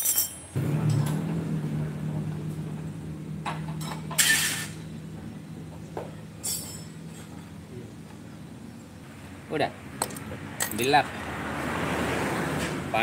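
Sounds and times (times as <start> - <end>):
metal tools clinking: 0.0 - 0.6, 3.7 - 4.8, 6.4 - 7.6, 10.0 - 10.9
low hum: 0.6 - 10.3.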